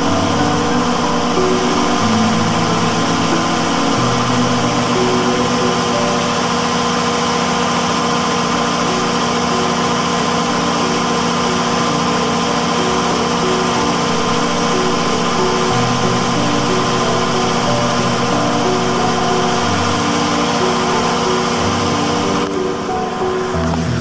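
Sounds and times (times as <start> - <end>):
generator engine idling: 0.0 - 24.0.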